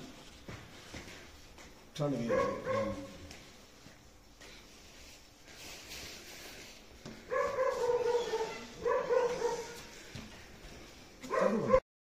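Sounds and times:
dog whining: 0:07.3 - 0:09.8.

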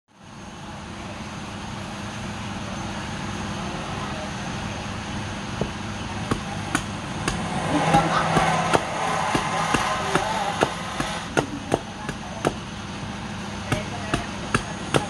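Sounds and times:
machete chopping on wooden stump: 0:05.6 - 0:12.6, 0:13.7 - 0:15.0.

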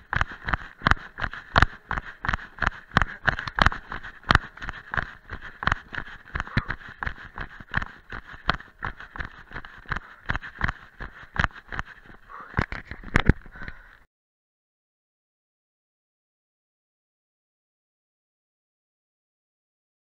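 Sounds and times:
footfalls on dirt trail: 0:00.0 - 0:13.9.

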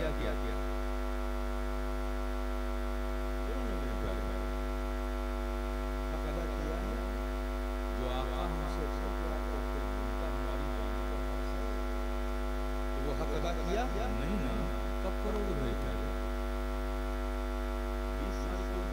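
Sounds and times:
electrical mains hum: 0:00.0 - 0:18.9.

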